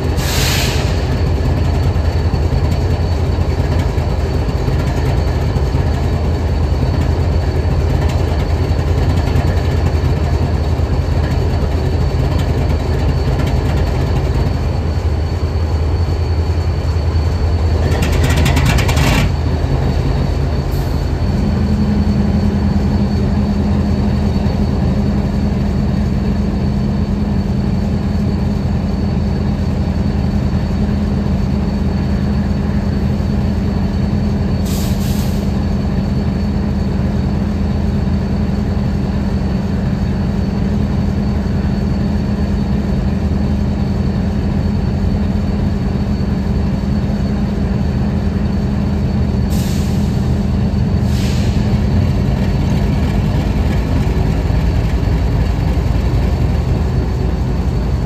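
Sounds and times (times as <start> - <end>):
locomotive idling rumble: 0.0 - 58.0
short hiss: 0.2 - 1.1.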